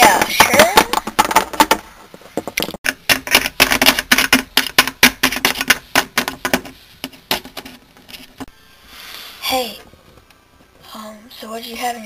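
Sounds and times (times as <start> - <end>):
plastic toy figurines tapping: 0.0 - 7.8.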